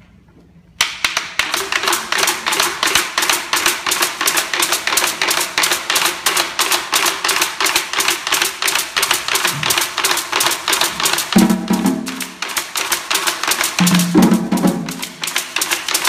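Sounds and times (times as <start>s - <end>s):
stick tapping on hand drum: 0.8s - 16.0s.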